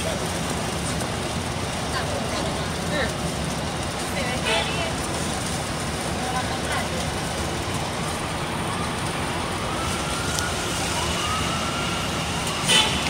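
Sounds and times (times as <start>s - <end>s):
wet street traffic: 0.0s - 13.0s
faint siren wailing: 6.6s - 13.0s.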